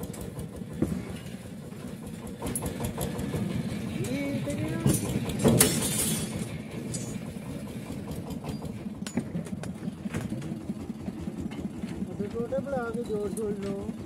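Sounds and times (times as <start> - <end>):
engine running steadily: 0.0 - 14.0
loud metal clank: 4.7 - 7.4.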